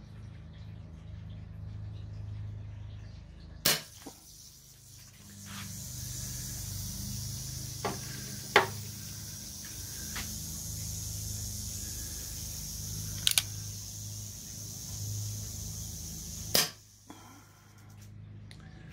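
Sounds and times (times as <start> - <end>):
steady high hiss: 3.7 - 18.0.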